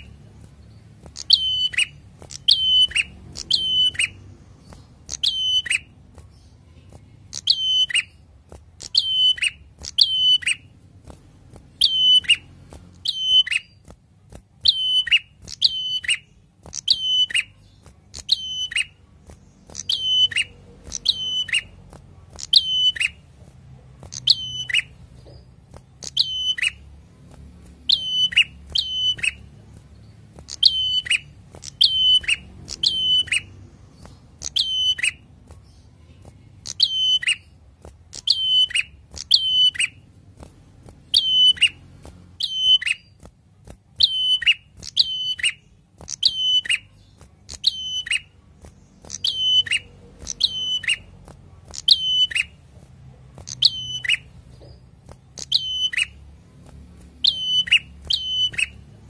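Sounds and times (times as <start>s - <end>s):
bird calling sharp notes: 1.2s - 4.2s, 5.0s - 5.9s, 7.3s - 8.2s, 8.8s - 10.7s, 11.8s - 13.8s, 19.7s - 21.8s, 38.1s - 40.0s, 49.0s - 52.6s, 57.2s - 58.8s.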